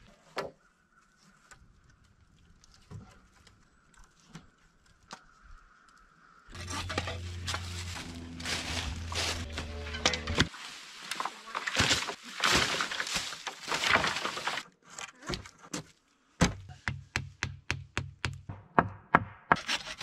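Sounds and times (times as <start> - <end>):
footsteps crunching dry leaves: 6.5 - 14.6.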